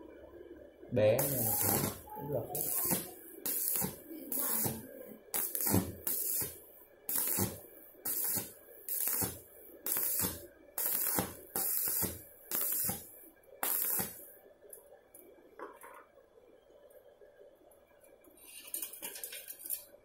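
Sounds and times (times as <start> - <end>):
welding arc crackling and hissing: 1.2 - 14.4.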